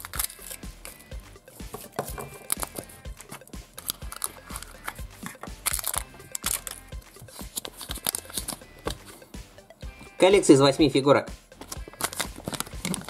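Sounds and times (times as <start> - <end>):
plastic wrapper rustling: 0.0 - 0.6, 2.0 - 8.6, 11.6 - 13.0
soft background music: 0.0 - 13.0
plastic capsule clicking: 1.8 - 6.8, 11.6 - 13.0.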